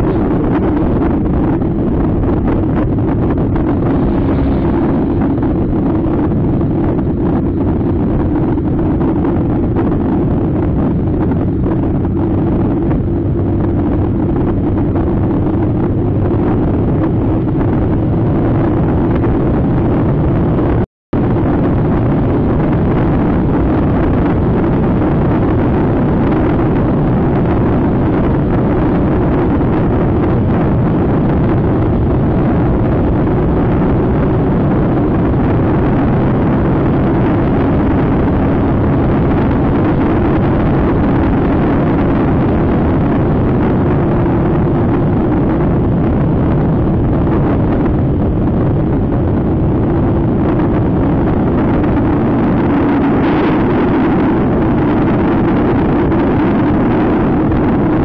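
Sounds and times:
motor scooter engine droning: 0:00.0 - 0:07.2
wind buffeting microphone: 0:00.0 - 0:58.0.

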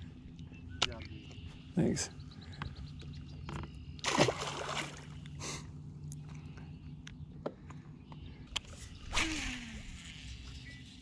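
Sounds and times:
steady low hum: 0:00.0 - 0:11.0
fish splashing into water: 0:04.0 - 0:05.2
water sloshing: 0:04.0 - 0:05.3.

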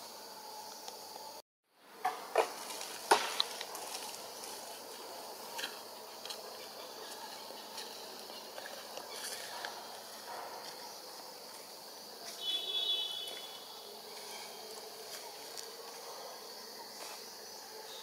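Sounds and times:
high insect drone: 0:00.0 - 0:18.0
sharp knocks and crackles: 0:02.0 - 0:04.6.

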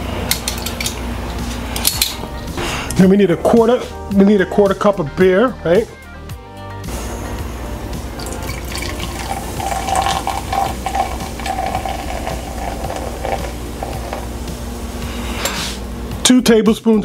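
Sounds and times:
beer pouring into jug: 0:08.1 - 0:14.3.

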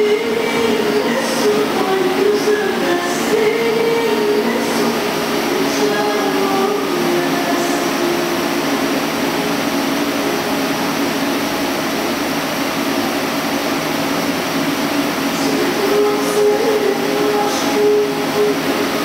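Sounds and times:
lathe humming: 0:00.0 - 0:19.0.

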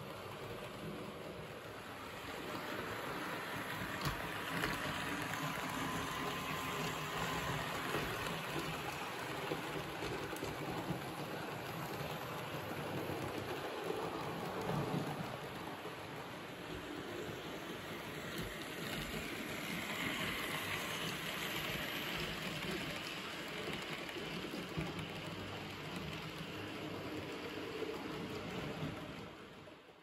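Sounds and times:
model train wheels rolling on rails: 0:00.0 - 0:30.0.

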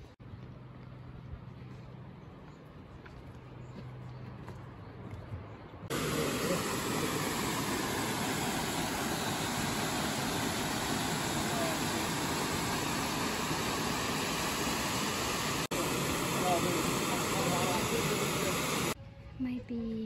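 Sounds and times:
waterfall rushing into pool: 0:05.9 - 0:19.0.

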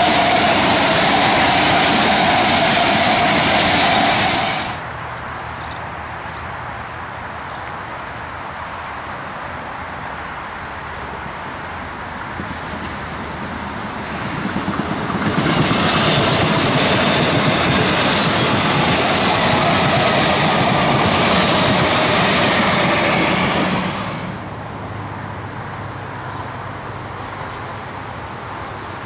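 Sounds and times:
electric train passing: 0:00.0 - 0:05.0, 0:11.7 - 0:25.3.

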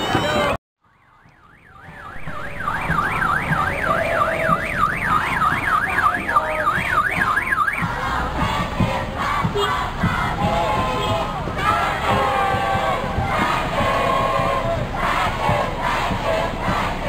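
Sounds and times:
electronic alarm siren wailing: 0:00.9 - 0:07.9
crowd noise: 0:01.6 - 0:17.0.

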